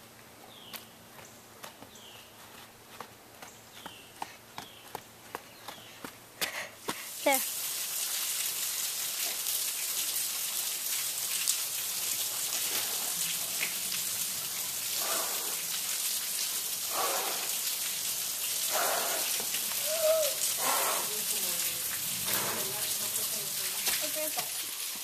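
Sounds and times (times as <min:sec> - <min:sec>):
waterfall splashing onto rock: 0:06.9 - 0:25.0.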